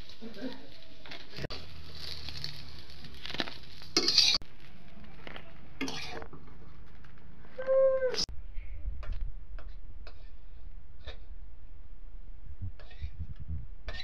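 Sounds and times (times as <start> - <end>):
fish sizzling in oil: 0.0 - 4.8
metal spatula scraping pan: 3.2 - 4.4, 5.8 - 6.3, 9.6 - 11.2.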